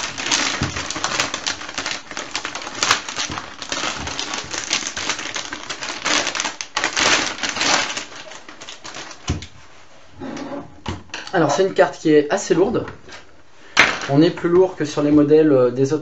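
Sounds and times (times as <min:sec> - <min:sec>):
plastic bag crinkling: 0:00.0 - 0:09.7.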